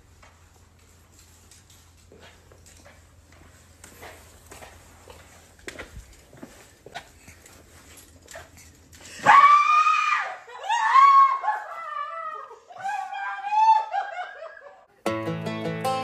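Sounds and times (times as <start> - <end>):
woman screaming: 9.2 - 14.6
woman crying emotionally: 10.4 - 14.9
plucked-string music: 15.0 - 16.0.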